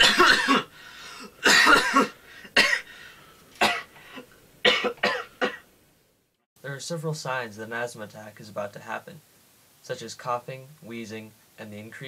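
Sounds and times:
man coughing: 0.0 - 3.0, 3.6 - 5.6.

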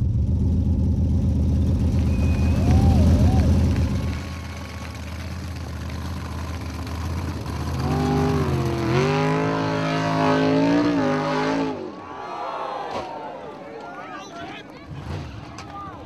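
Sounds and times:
buggy engine revving: 0.0 - 12.0.

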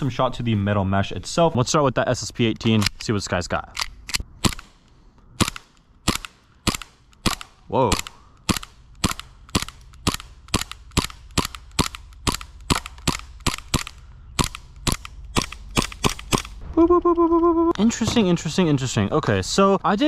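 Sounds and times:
airsoft pistol shots: 5.4 - 16.6.

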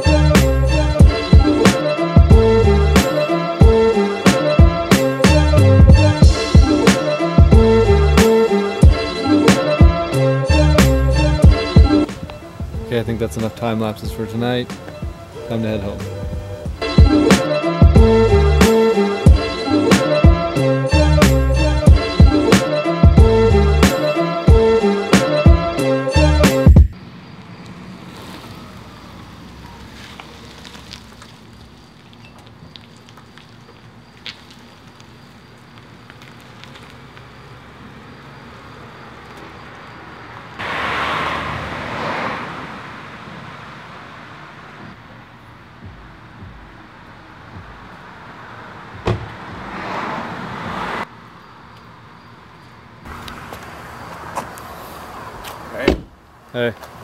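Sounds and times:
low traffic hum: 0.0 - 57.0
tyres hissing on wet road: 27.0 - 44.9, 48.0 - 51.1, 53.1 - 57.0.

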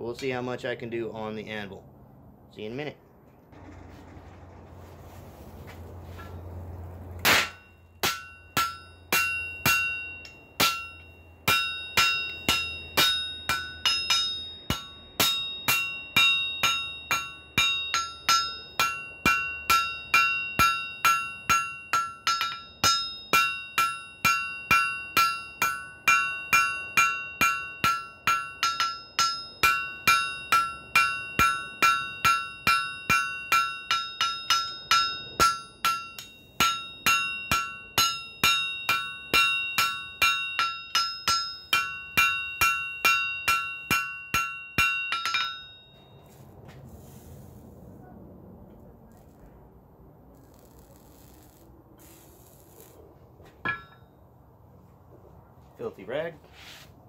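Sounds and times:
hammer striking metal on anvil: 7.2 - 46.4, 53.6 - 54.1.

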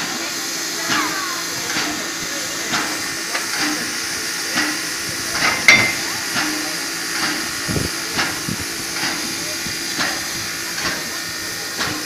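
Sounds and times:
steam hissing: 0.0 - 12.0
metallic clank with ring: 5.4 - 6.2.

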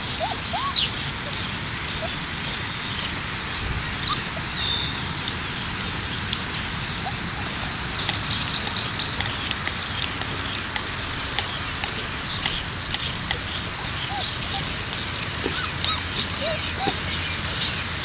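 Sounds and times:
puppies whimpering and yipping: 0.0 - 2.2, 4.0 - 5.0, 7.0 - 7.6, 13.3 - 17.8.

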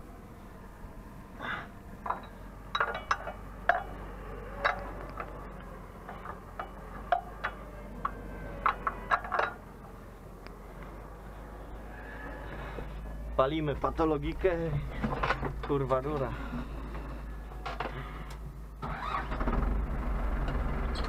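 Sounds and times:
low steady hum: 0.0 - 21.0
sharp clicks and knocks: 6.0 - 9.6.

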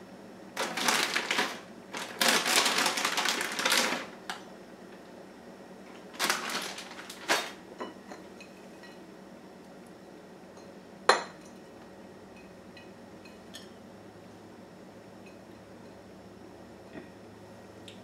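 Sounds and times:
plastic bag crinkling: 0.6 - 4.4, 6.0 - 7.6.

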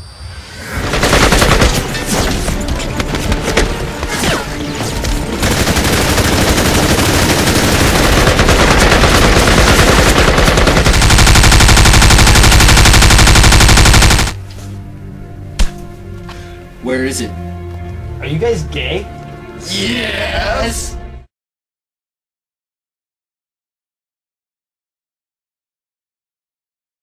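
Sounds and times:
machine-gun bursts: 0.8 - 1.9, 5.4 - 14.4.

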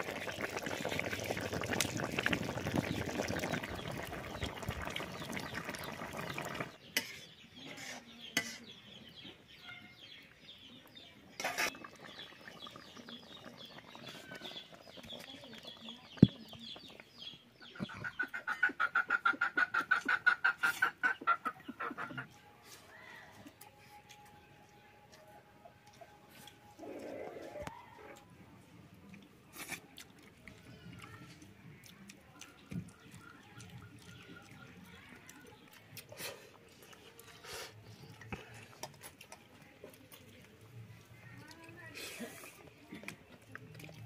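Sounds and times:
curry boiling and bubbling: 0.0 - 17.9, 26.2 - 44.0
chicken clucking: 17.7 - 22.3.

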